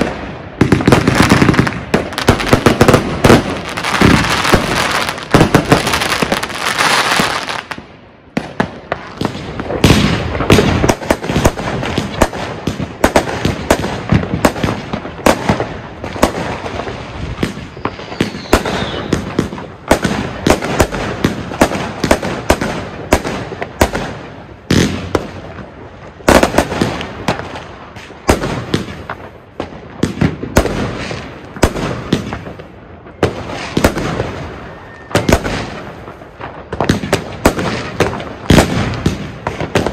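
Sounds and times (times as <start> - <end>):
firework crackling burst: 0.0 - 7.9, 8.5 - 32.6
firework launches and bangs: 0.0 - 32.6.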